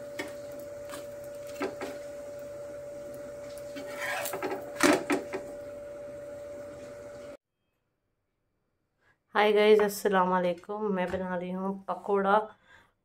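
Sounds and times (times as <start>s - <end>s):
steady high hum: 0.0s - 7.4s
metal spatula scraping a griddle: 3.7s - 4.6s.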